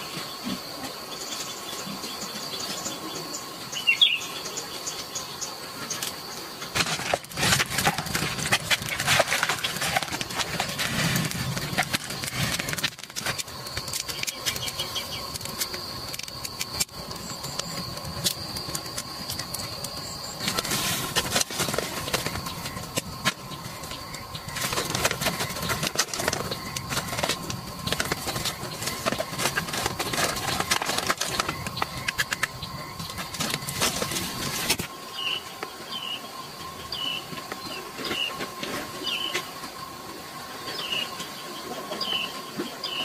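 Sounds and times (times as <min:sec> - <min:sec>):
roots clicking and knocking: 0:06.0 - 0:34.9.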